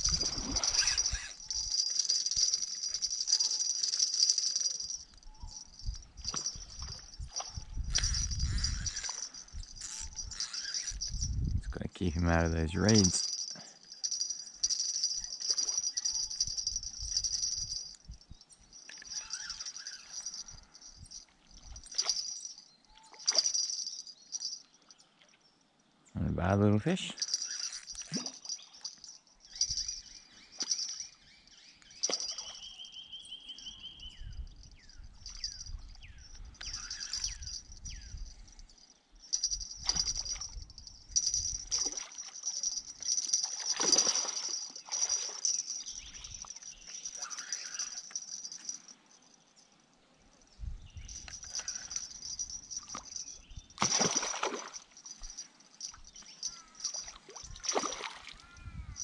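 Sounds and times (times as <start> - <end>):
high-pitched insect buzz: 0.0 - 11.4, 13.0 - 18.1, 18.9 - 21.2, 27.2 - 30.0, 35.2 - 38.6, 39.3 - 48.8
fish splashing in water: 43.4 - 45.6, 53.8 - 55.0, 56.9 - 58.4.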